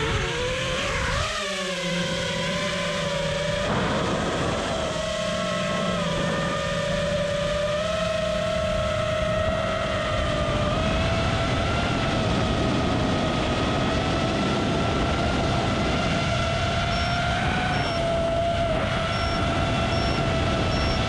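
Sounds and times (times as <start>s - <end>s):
drone motors whining: 0.0s - 21.0s
rushing noise: 2.4s - 7.4s.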